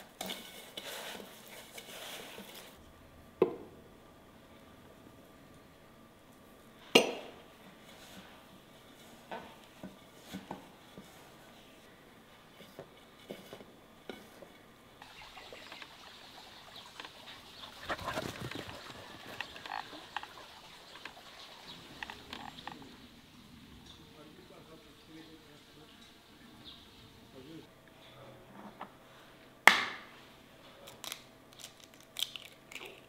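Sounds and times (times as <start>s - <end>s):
clattering and rustling: 16.9s - 21.3s.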